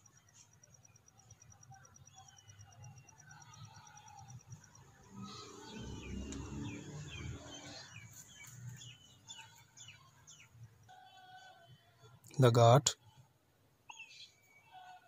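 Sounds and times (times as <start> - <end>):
small birds chirping: 0.0 - 10.9, 13.9 - 15.0.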